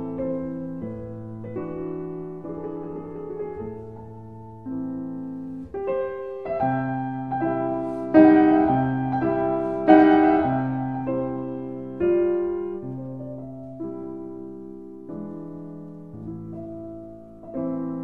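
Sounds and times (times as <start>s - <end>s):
slow piano chords: 0.0s - 18.0s.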